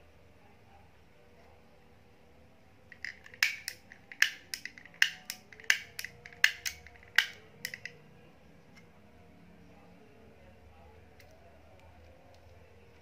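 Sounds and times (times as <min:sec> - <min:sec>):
sharp plastic clicks: 0:02.9 - 0:08.0.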